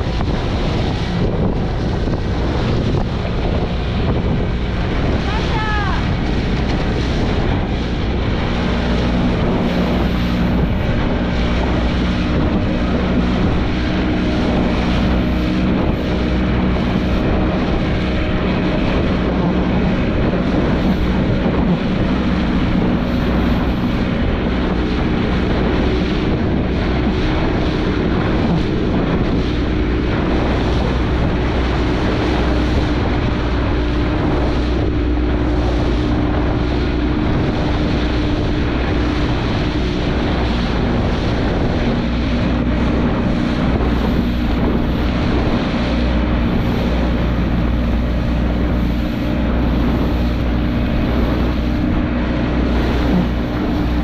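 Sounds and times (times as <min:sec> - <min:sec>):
boat engine droning: 0:00.0 - 0:54.0
wind on microphone: 0:00.0 - 0:54.0.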